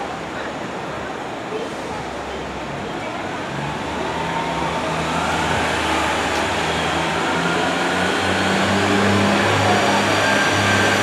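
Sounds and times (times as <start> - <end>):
diesel train engines humming: 0.0 - 11.0.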